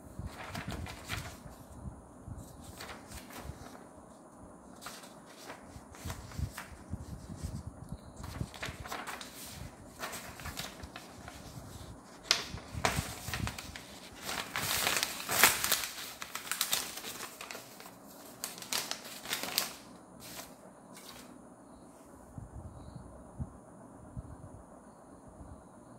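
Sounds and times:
paper rustling and crinkling: 0.2s - 1.8s, 2.4s - 7.6s, 8.2s - 21.4s.

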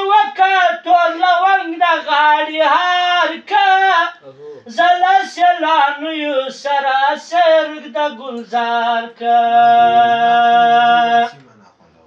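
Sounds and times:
man singing unaccompanied: 0.0s - 11.4s.

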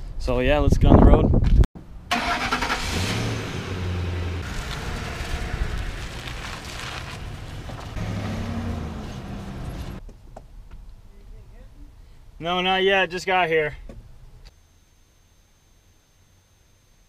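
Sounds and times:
pickup truck engine accelerating: 2.1s - 10.0s.

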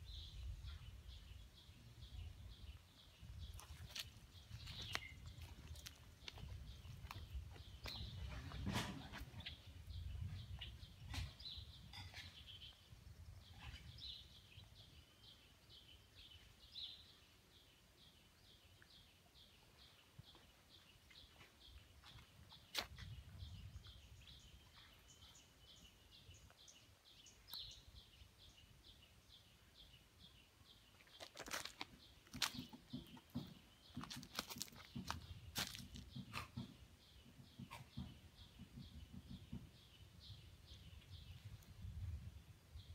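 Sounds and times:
small bird chirping: 0.0s - 17.6s
soft knocks and rustles: 3.6s - 9.6s.

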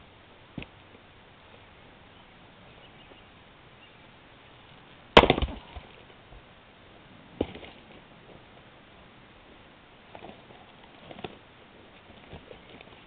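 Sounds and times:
maul striking log: 5.2s - 5.9s
wood splitting crackle: 5.2s - 6.2s.

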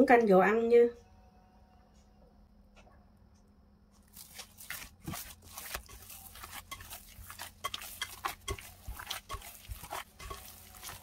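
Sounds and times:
hands kneading dough: 4.0s - 11.0s.

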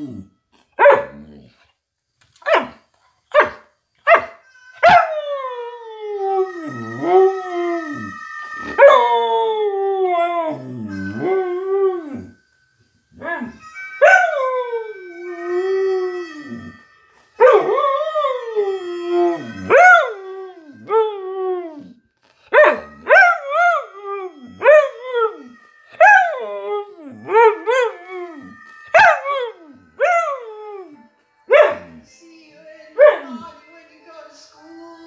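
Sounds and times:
dog howling: 4.1s - 12.4s, 13.2s - 32.0s.

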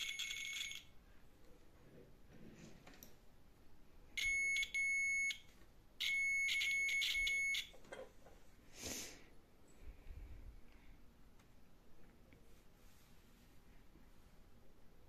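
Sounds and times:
multimeter continuity beeps: 4.2s - 7.8s.

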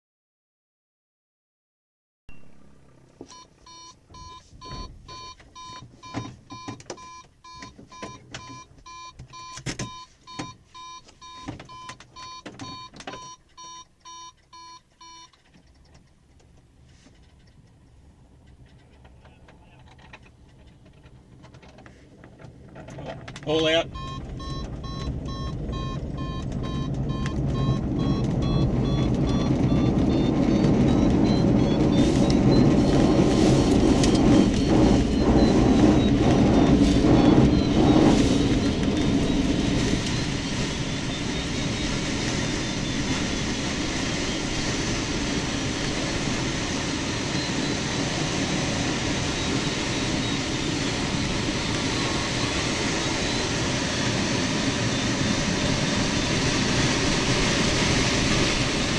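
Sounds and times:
runway rumble and knocks: 18.3s - 42.1s
electronic tone beeping and warbling: 23.7s - 44.6s
rushing air: 24.1s - 58.9s.

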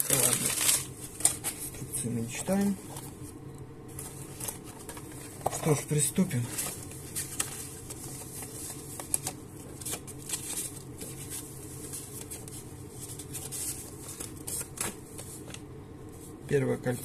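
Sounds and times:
paper packet crinkling: 0.0s - 1.8s, 4.0s - 15.6s
steady low hum: 0.0s - 17.0s.

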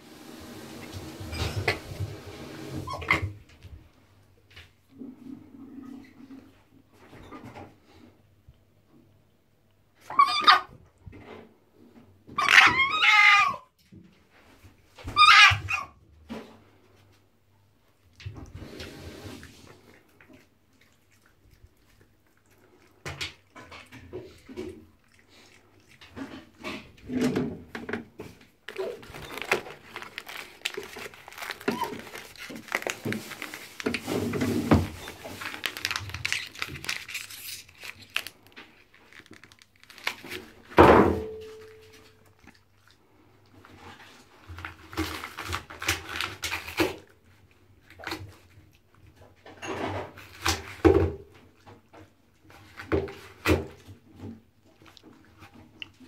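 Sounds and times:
knocks and scrapes in bathtub: 0.0s - 9.2s, 18.2s - 35.7s, 43.0s - 45.7s, 48.0s - 56.0s
paper rustling: 28.2s - 42.1s, 43.7s - 47.1s.

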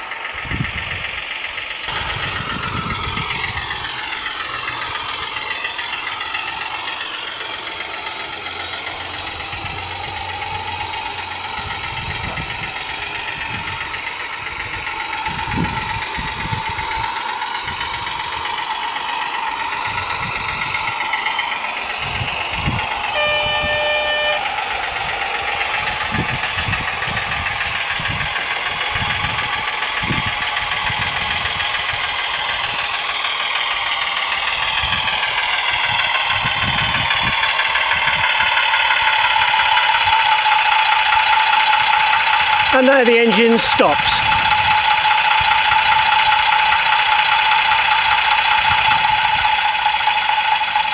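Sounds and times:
simulated diesel engine sound: 0.0s - 50.9s
horn blast: 23.1s - 24.6s.

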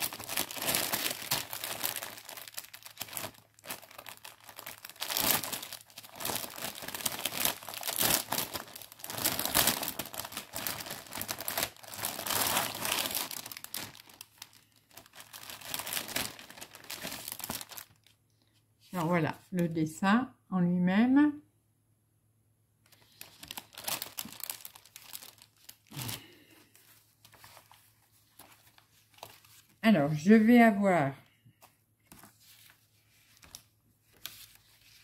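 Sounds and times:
plastic packaging crinkling: 0.0s - 18.2s, 22.9s - 29.8s.

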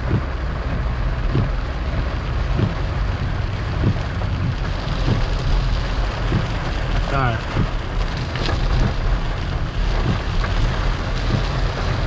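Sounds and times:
rain on car: 0.0s - 12.0s
road and engine noise inside car: 0.0s - 12.0s
soft repeating knock: 2.5s - 2.8s.

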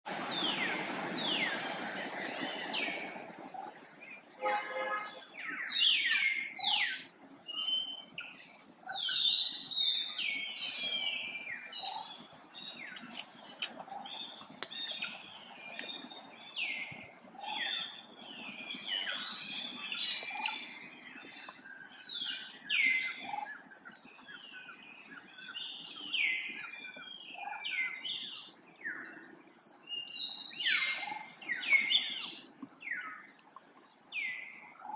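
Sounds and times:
birds chirping and whistling: 4.4s - 33.4s.

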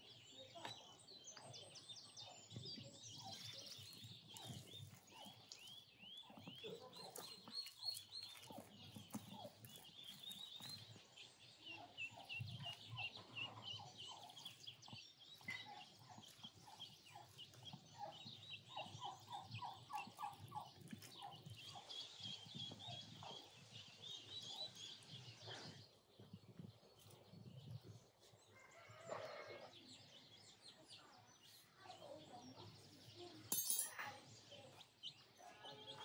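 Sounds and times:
small birds chirping: 0.0s - 36.0s
wet clay being pressed: 7.1s - 10.8s.

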